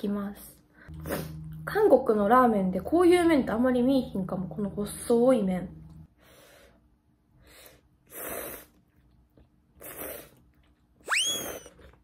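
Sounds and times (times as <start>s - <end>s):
person slurping noodles: 0.9s - 1.6s, 8.0s - 8.9s, 9.7s - 10.5s
squeaky whistle: 11.0s - 11.7s.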